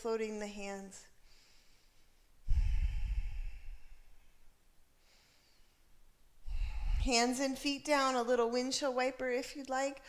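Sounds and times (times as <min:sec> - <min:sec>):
person exhaling: 0:02.4 - 0:04.3, 0:06.4 - 0:07.1.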